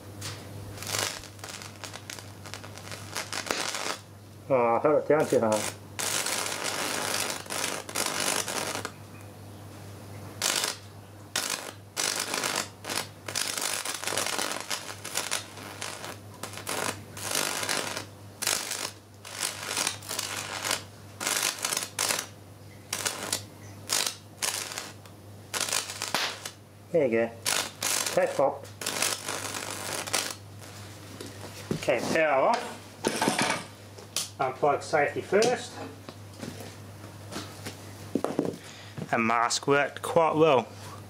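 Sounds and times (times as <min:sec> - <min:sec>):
electric arc crackling: 0:00.0 - 0:09.0, 0:10.4 - 0:30.9
low mains hum: 0:00.0 - 0:41.0.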